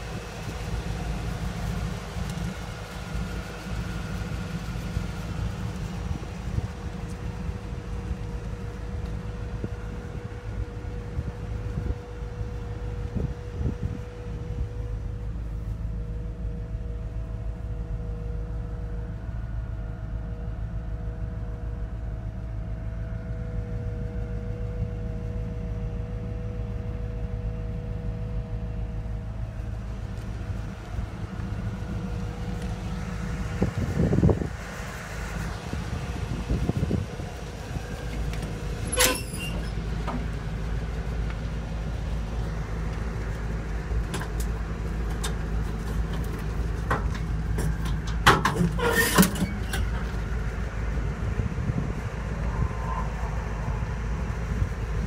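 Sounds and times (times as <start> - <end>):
engine idling: 0.0 - 55.0
metal latch and door clanks: 46.9 - 50.1.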